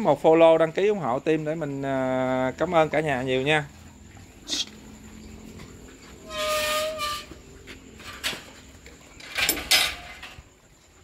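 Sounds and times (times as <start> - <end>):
loud harsh noises: 6.2 - 7.4
wild boar squealing: 6.2 - 7.4.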